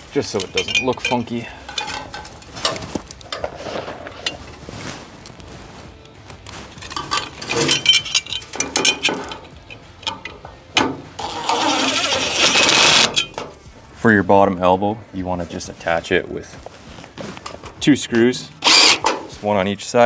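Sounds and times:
clinks of strap and screws: 0.1 - 13.6, 17.0 - 19.4
cordless drill driving screws: 11.2 - 13.2, 18.6 - 19.3.

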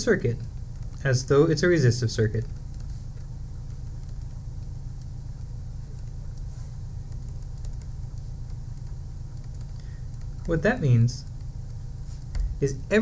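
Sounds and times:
steady low hum: 0.0 - 13.0
faint ticks: 2.4 - 12.5.

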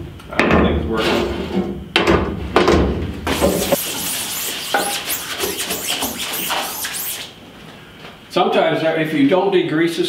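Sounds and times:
stiff brush scrubbing mesh: 3.3 - 7.4.

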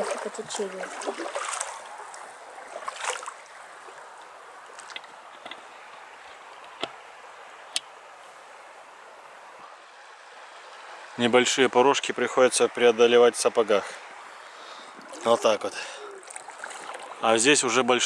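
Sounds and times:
running water hiss: 0.0 - 18.0
water splashing and trickling: 0.0 - 18.0.

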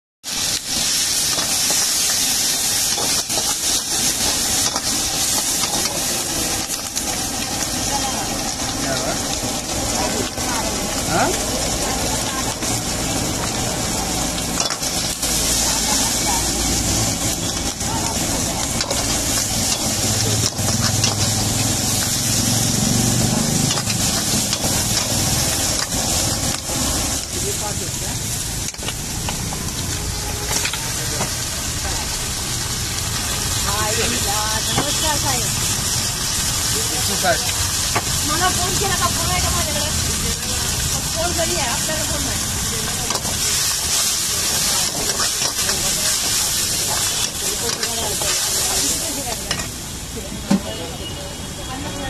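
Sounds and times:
vegetables sizzling in wok: 0.2 - 52.0
metal ladle scraping wok: 12.5 - 27.4, 28.5 - 32.4, 42.3 - 49.8.

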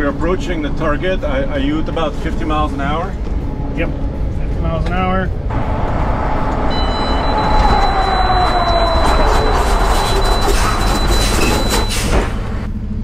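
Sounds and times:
falling whine: 3.1 - 12.7
high warning tone: 5.3 - 12.1
truck braking with road noise: 5.3 - 12.8.

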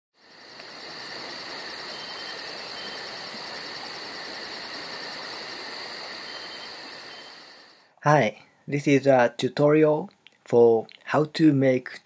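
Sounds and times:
insects chirping: 0.2 - 7.9
shrill insect trill: 0.2 - 7.9.

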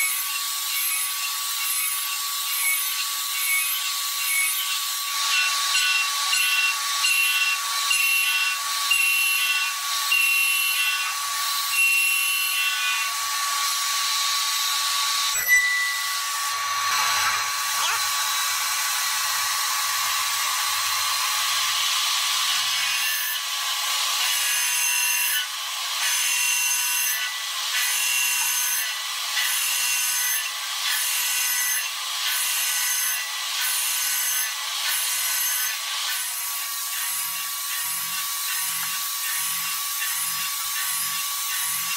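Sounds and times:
milling machine whine: 0.0 - 22.9
pulsing metal cutting noise: 0.0 - 41.9.

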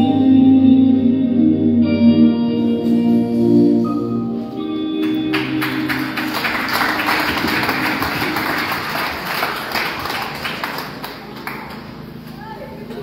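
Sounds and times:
performance music: 0.0 - 11.9
audience applauding: 5.0 - 12.1.

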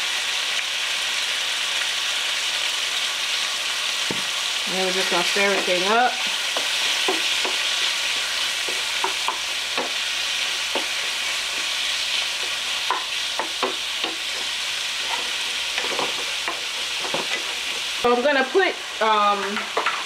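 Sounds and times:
food sizzling in pans: 0.0 - 20.0
spatula scraping a pan: 5.2 - 20.0.

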